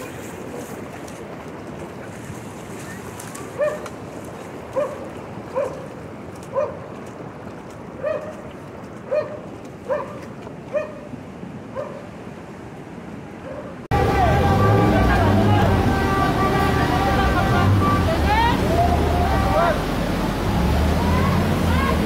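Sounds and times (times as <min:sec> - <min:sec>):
rushing floodwater: 0:00.0 - 0:22.0
dog barking: 0:03.6 - 0:03.9, 0:04.8 - 0:05.9, 0:06.5 - 0:06.8, 0:08.0 - 0:08.4, 0:09.1 - 0:11.1, 0:11.7 - 0:12.1, 0:13.4 - 0:13.8.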